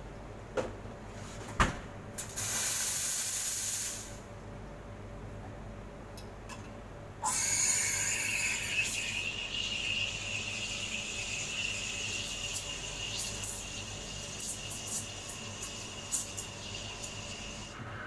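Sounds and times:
steam wand hissing: 0:07.2 - 0:17.8.

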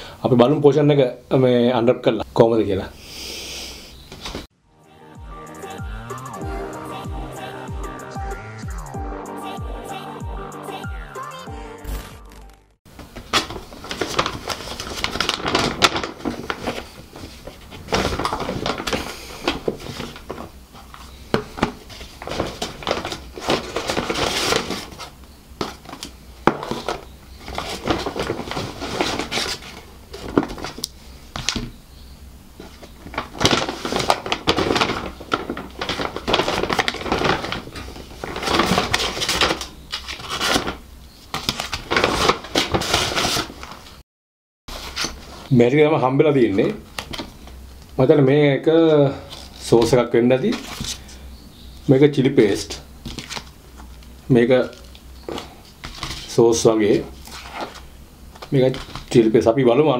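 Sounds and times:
paper bag rustling: 0:12.9 - 0:31.2, 0:32.6 - 0:44.0.

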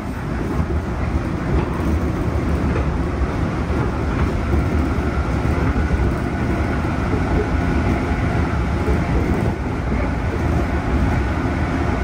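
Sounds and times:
train wheels rumbling on rail: 0:00.0 - 0:12.0.

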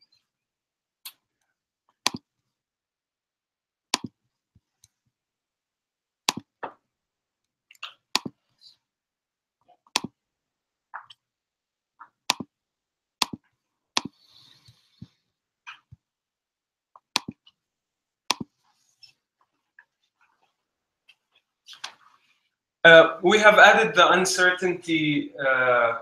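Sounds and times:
laptop keyboard and trackpad clicks: 0:17.0 - 0:17.4.

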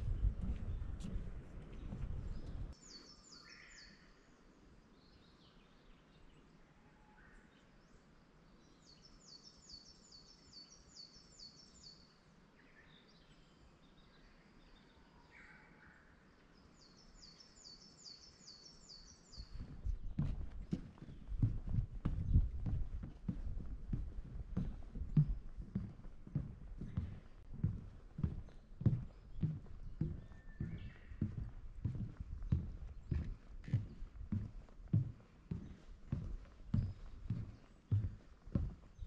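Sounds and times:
footsteps on wooden boardwalk: 0:00.0 - 0:03.1, 0:19.0 - 0:39.0
songbird singing falling notes: 0:26.8 - 0:33.4
faint bird calls: 0:26.8 - 0:34.0.

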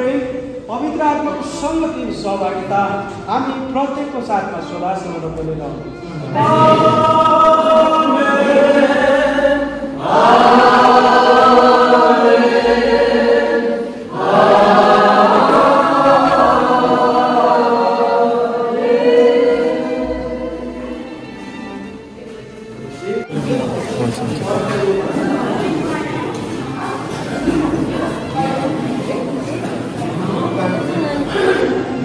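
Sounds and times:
group singing a hymn: 0:06.2 - 0:21.8.

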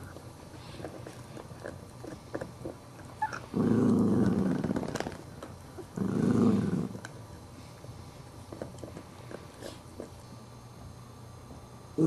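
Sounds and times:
dog growling: 0:00.8 - 0:07.1.

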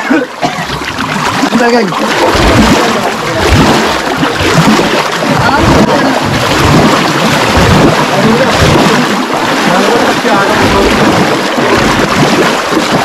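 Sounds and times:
muddy water sloshing and splashing: 0:00.0 - 0:13.0.

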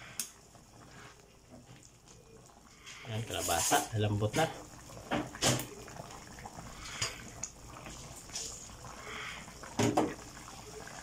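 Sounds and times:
broth simmering and bubbling: 0:00.0 - 0:11.0
ladle stirring in pan: 0:02.7 - 0:10.4.

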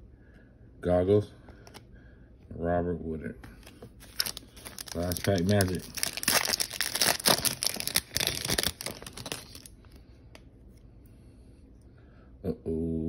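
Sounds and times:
wrapper tearing and crinkling: 0:04.0 - 0:09.8.

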